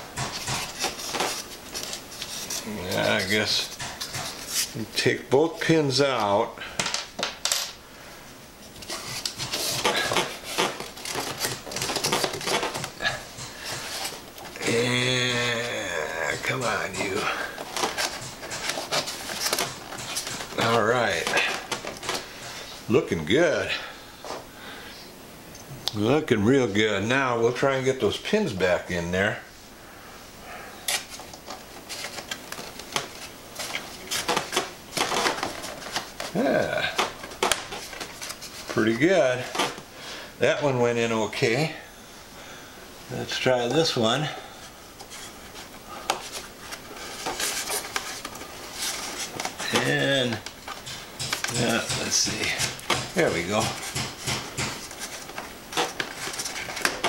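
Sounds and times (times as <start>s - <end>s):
plastic parts clicking and tapping: 17.6s - 22.2s, 47.2s - 57.0s.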